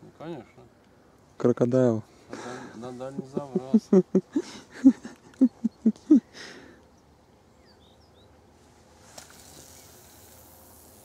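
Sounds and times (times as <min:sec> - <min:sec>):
fishing rod swishing: 0:09.0 - 0:10.3
brief hiss: 0:09.0 - 0:11.0.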